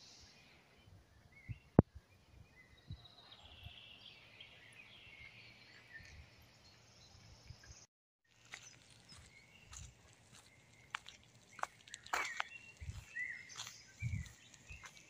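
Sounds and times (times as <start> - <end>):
faint birdsong: 0.0 - 15.0
soft low thumps: 14.0 - 14.4.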